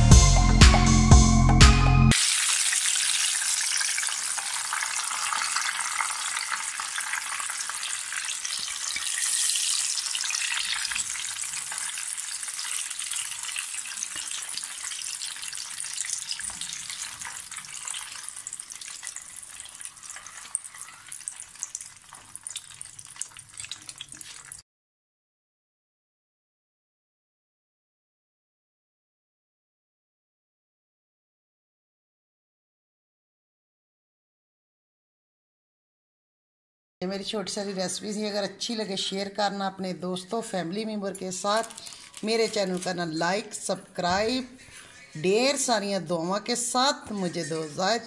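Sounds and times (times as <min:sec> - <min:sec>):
food deep-frying in hot oil: 0:02.1 - 0:24.6, 0:41.2 - 0:48.0.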